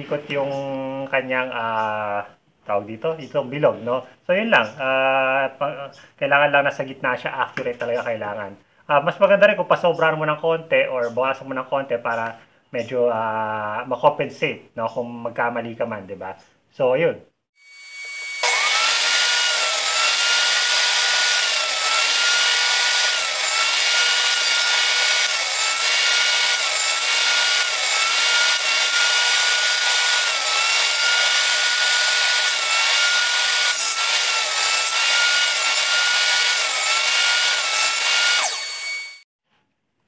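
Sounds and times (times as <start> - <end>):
table saw cutting plywood: 17.6 - 39.2.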